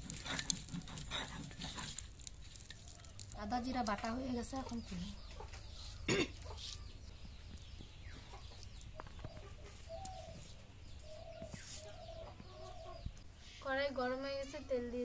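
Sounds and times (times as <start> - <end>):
chickens clucking: 4.5 - 13.4.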